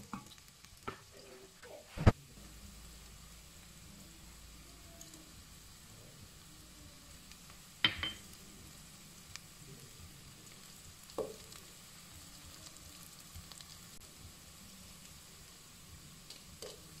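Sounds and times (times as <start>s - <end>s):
onion frying in oil: 0.0s - 17.0s
spices knocking into pot: 7.8s - 8.4s, 11.1s - 11.6s, 16.6s - 16.9s.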